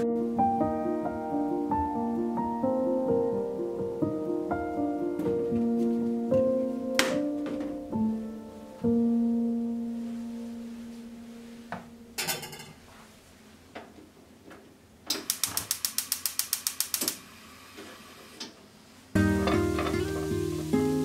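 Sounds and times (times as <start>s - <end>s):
gas stove igniter clicking: 15.1s - 17.2s.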